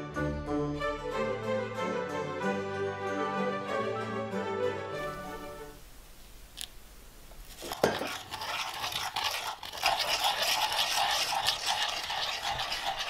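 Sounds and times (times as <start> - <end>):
spoon whipping coffee in bowl: 7.5 - 13.0.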